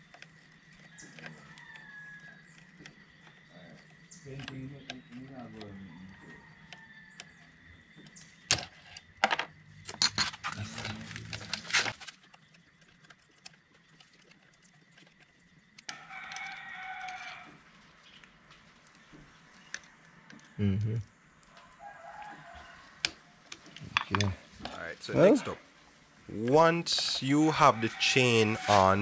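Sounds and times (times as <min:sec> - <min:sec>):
rooster crowing: 0:01.0 - 0:02.5, 0:05.5 - 0:07.5, 0:15.9 - 0:17.7, 0:21.4 - 0:23.4, 0:26.6 - 0:29.0.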